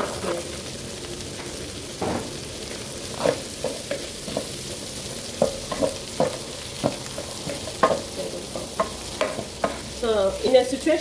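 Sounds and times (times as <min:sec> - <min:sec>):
vegetables sizzling in a pan: 0:00.0 - 0:11.0
wooden spatula scraping a pan: 0:03.1 - 0:09.8.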